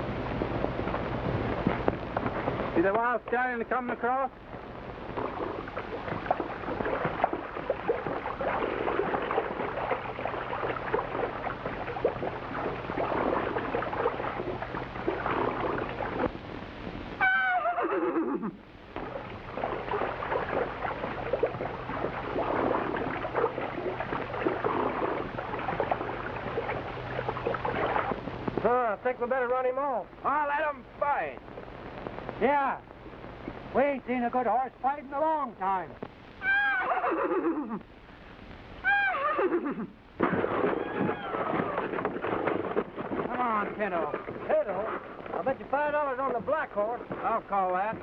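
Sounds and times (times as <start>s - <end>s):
horse splashing through water: 5.1s - 16.3s, 19.0s - 28.2s, 40.2s - 48.0s
horse whinnying: 17.2s - 18.6s, 36.4s - 37.6s, 38.8s - 42.0s.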